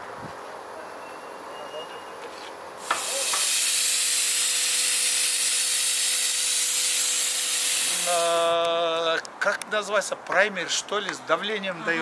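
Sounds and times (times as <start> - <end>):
spray gun hissing: 2.8 - 8.4.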